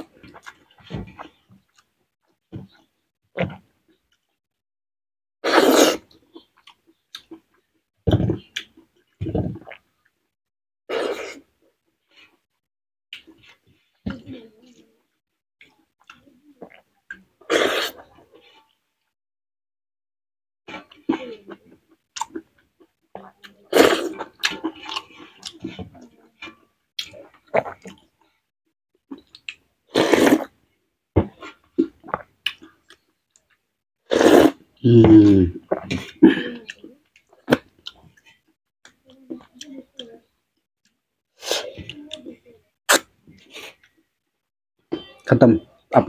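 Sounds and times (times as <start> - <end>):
chewing and wet smacks: 0.0 - 1.9, 6.1 - 7.7, 24.2 - 25.7, 26.4 - 28.2, 29.1 - 29.6, 31.4 - 33.6, 35.7 - 40.1
loud slurp: 5.4 - 6.1, 17.5 - 18.1, 29.9 - 30.5, 34.1 - 35.9.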